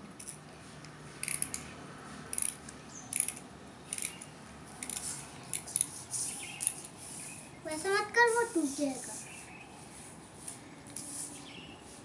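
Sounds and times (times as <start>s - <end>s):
ratcheting clicks of winding key: 1.2s - 1.6s, 2.3s - 5.9s.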